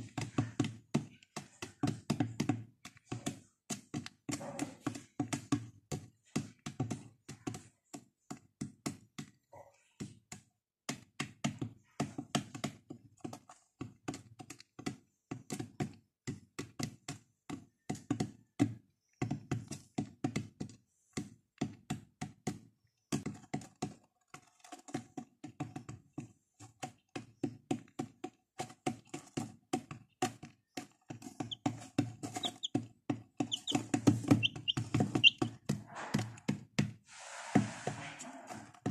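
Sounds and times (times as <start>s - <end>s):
chicks pecking on plastic: 0.0s - 38.9s
chicks peeping: 31.2s - 36.4s.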